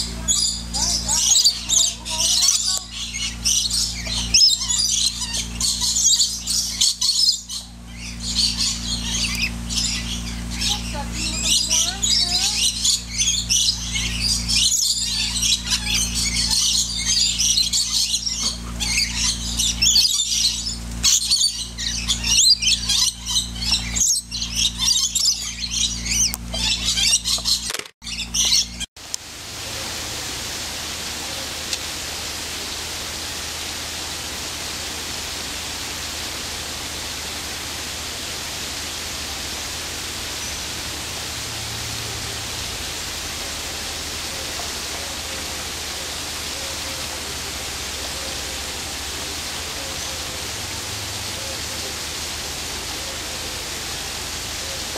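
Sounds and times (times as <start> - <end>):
birds chirping: 0.0 - 28.9, 29.5 - 54.9
low hum: 0.0 - 54.9.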